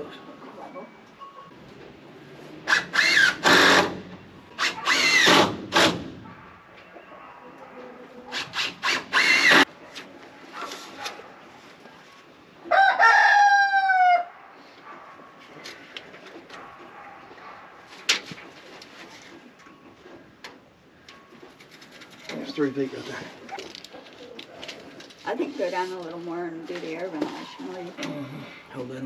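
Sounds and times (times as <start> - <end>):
cordless drill driving screws: 2.7 - 4.0, 4.6 - 6.0, 8.3 - 9.6
rooster crowing: 12.7 - 14.3.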